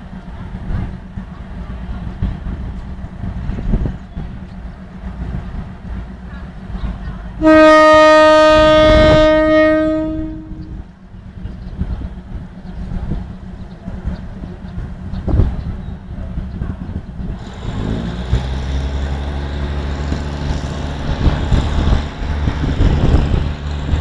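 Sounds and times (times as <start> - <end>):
idling diesel rumble: 0.0 - 24.0
two-tone train horn blast: 7.4 - 10.8.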